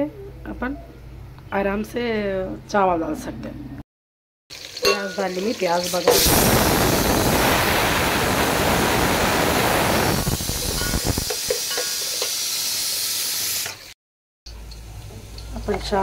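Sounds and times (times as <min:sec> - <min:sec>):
onions sizzling in hot oil: 0:04.5 - 0:16.0.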